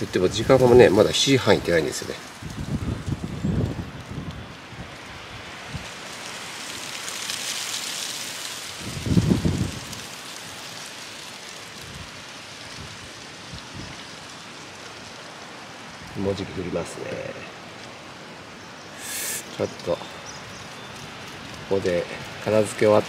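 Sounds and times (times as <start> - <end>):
wind rumble on microphone: 0.0 - 6.6, 8.6 - 10.6, 11.7 - 14.3, 20.2 - 23.0
strong wind through trees: 0.0 - 23.0.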